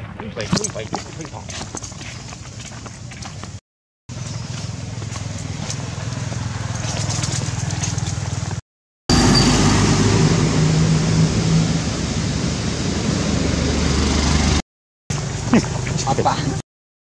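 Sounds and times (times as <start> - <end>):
loud outdoor rumbling: 4.1 - 16.6.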